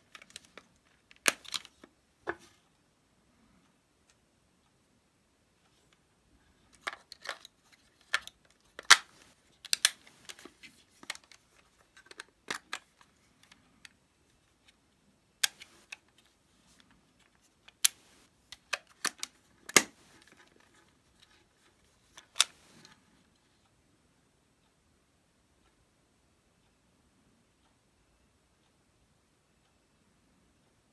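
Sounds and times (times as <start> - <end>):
camera plastic clicks and snaps: 6.8 - 13.6, 15.4 - 16.0, 17.7 - 20.3, 22.2 - 22.9.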